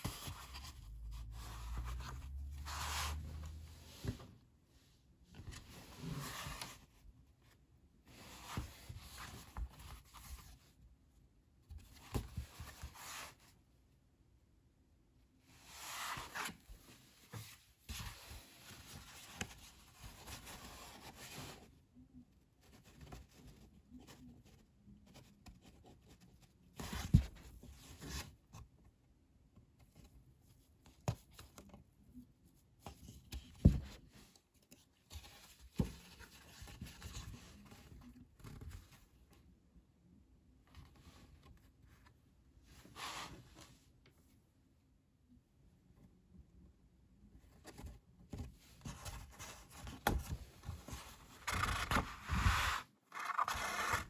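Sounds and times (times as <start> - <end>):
paper rustling: 48.8 - 54.0.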